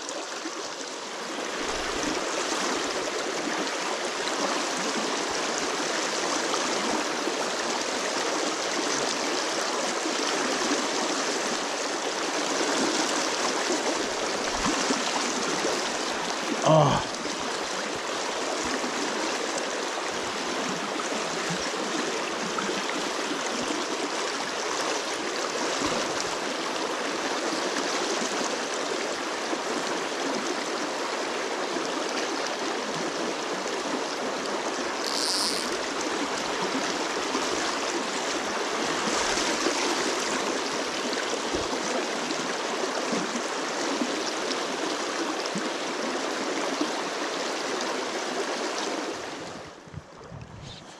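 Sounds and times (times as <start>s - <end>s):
stream rushing over rocks: 0.0s - 49.8s
brief high-pitched sound: 35.0s - 35.8s.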